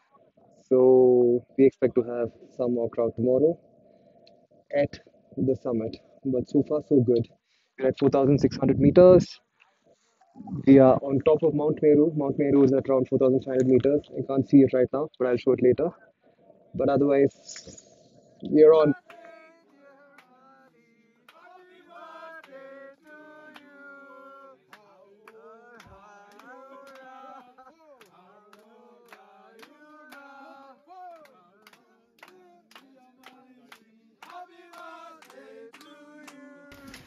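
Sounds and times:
men singing in chorus: 18.8s - 37.0s
rhythmic hand clapping: 18.9s - 37.0s.

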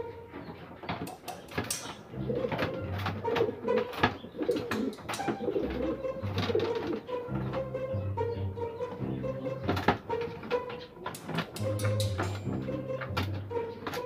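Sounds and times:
pigeons cooing: 0.4s - 7.7s
plastic crate clicking: 0.9s - 5.5s, 9.7s - 12.5s.

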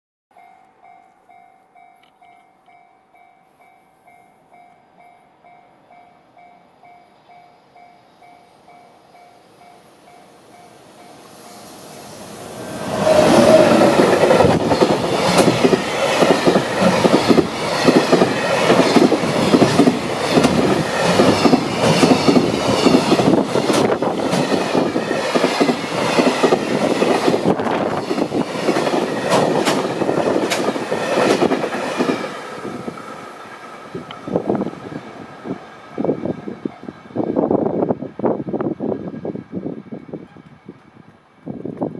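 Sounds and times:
train wheels clattering on rails: 13.0s - 33.0s.

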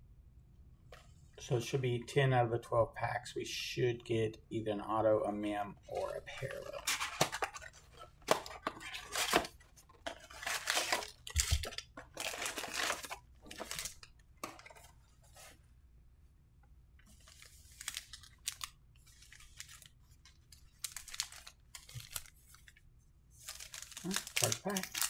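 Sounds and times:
cardboard tearing and foil crinkling: 5.9s - 14.1s, 17.2s - 22.8s, 23.4s - 25.0s.

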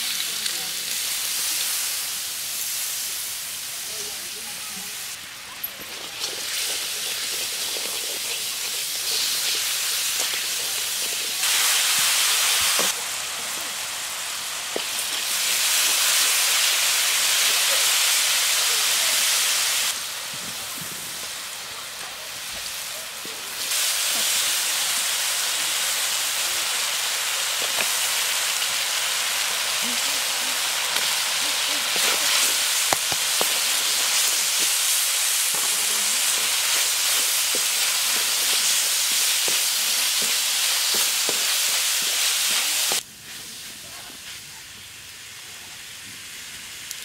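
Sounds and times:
paste sizzling in hot oil: 0.0s - 47.0s
bamboo stick knocking wok: 30.6s - 43.0s.

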